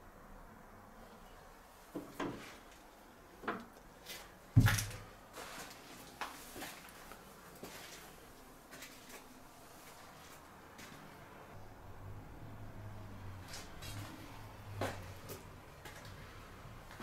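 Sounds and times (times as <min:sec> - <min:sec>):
knocks and thuds: 0:04.6 - 0:05.0.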